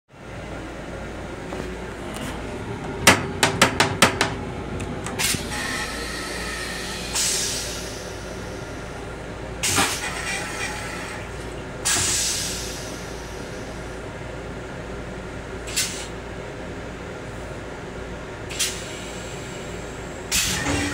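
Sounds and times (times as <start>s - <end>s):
steady low train background: 0.1s - 20.9s
sharp knocks and rattles: 3.0s - 4.4s
air hiss bursts: 7.0s - 8.6s, 11.9s - 13.4s.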